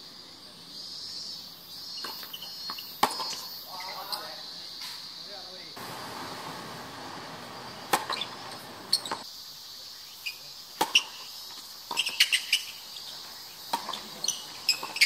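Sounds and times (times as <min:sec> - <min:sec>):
high insect drone: 0:00.0 - 0:15.0
tennis balls bouncing on court: 0:02.0 - 0:03.5, 0:05.8 - 0:09.2, 0:10.8 - 0:15.0
tennis balls hit by rackets: 0:02.0 - 0:03.6, 0:05.8 - 0:09.2, 0:10.8 - 0:15.0.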